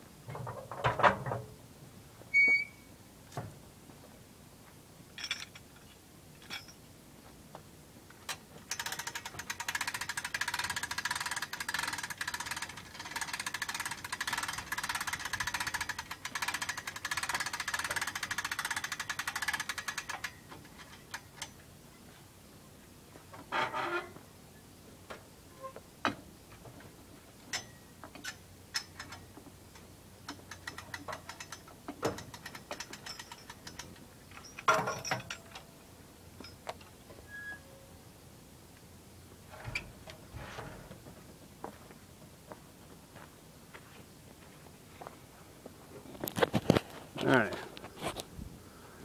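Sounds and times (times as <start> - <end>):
metal clinks and knocks: 5.1 - 6.8, 27.5 - 29.3, 30.3 - 35.8
winch ratcheting clicks: 8.3 - 21.6, 27.5 - 35.7.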